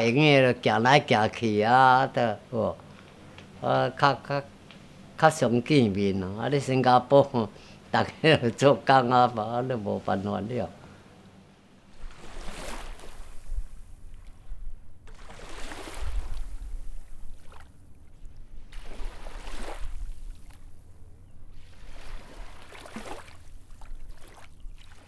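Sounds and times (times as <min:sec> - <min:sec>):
water washing in swells: 0:11.9 - 0:14.4, 0:15.0 - 0:20.6, 0:21.5 - 0:25.0.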